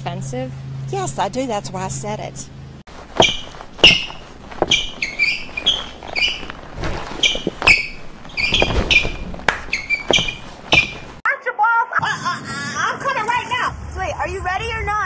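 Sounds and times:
sneakers squeaking on stage floor: 2.9 - 11.2.

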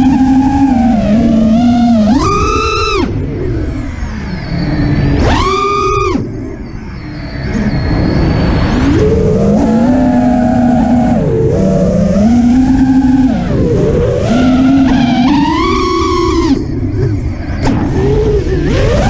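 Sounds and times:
drone motors whining: 0.0 - 19.0
low rushing noise: 0.0 - 19.0.

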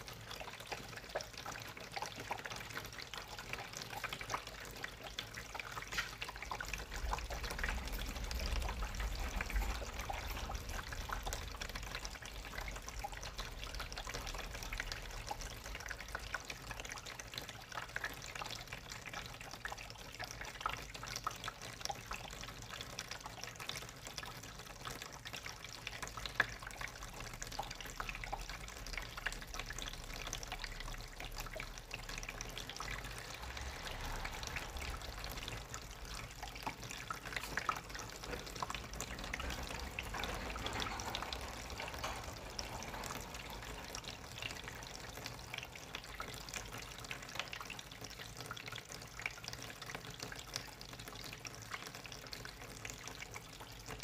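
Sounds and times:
water trickling through drain pipes: 0.0 - 54.0
low rumble: 32.7 - 36.8.

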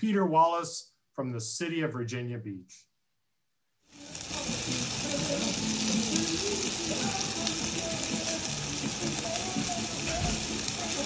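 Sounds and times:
chicken sizzling on a grill: 3.9 - 11.0.

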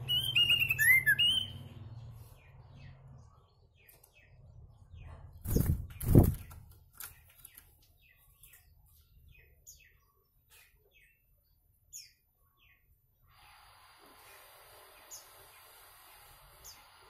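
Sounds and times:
bird chirping: 0.0 - 13.2
bird wings fluttering: 5.4 - 7.8.

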